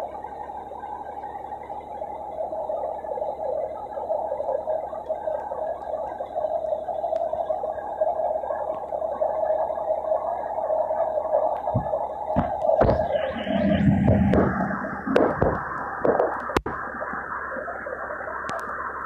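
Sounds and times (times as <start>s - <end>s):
fire engine running: 9.6s - 18.2s.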